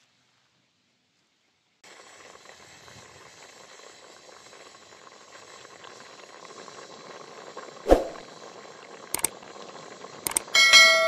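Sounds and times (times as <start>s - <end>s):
marmalade boiling in a pot: 0.2s - 11.0s.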